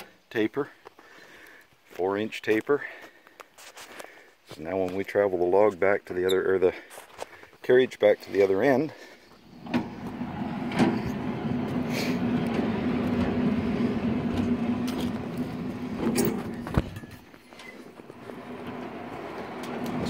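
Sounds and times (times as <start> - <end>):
sawmill carriage rolling rumble: 9.5 - 20.0
carriage stopping clunk: 9.6 - 20.0.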